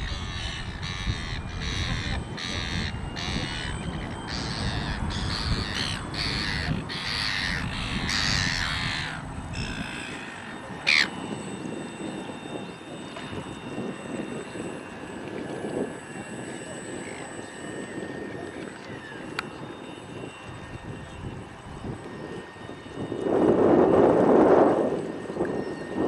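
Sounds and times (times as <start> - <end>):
bird calling harshly: 0.0 - 11.2.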